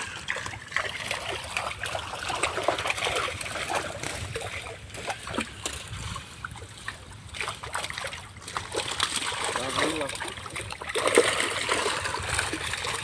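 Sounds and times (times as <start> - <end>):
fish splashing in net: 0.0 - 13.0
trickling water: 0.0 - 13.0.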